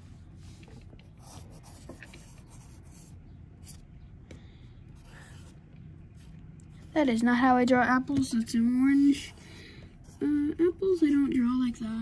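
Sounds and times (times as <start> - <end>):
pencil scratching on paper: 1.2 - 3.8, 5.0 - 5.6.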